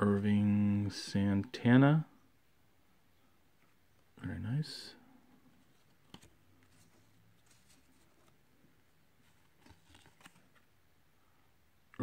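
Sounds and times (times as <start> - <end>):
soft clicks and rustles: 5.3 - 10.7
cards sliding in hands: 5.6 - 8.4, 9.2 - 10.7.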